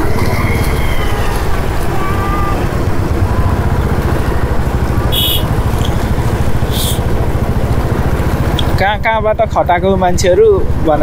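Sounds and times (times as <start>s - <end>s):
motor scooter engine rumbling: 0.0s - 11.0s
other motorcycles: 0.0s - 11.0s
brief high-pitched sound: 5.1s - 5.9s.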